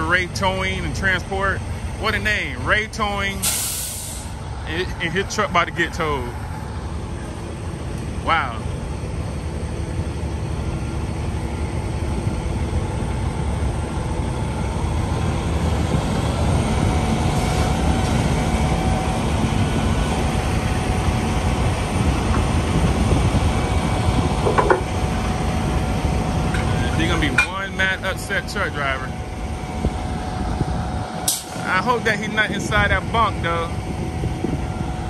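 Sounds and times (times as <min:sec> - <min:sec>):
diesel engine running: 0:00.0 - 0:35.0
metal clank: 0:26.5 - 0:27.7.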